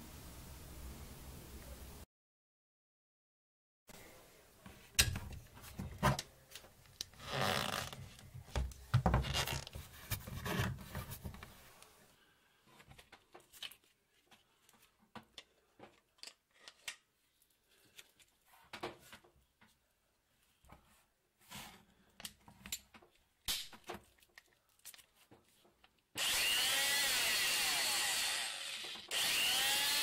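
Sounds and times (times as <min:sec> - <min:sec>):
knocking and scraping on wood: 0:08.4 - 0:11.6.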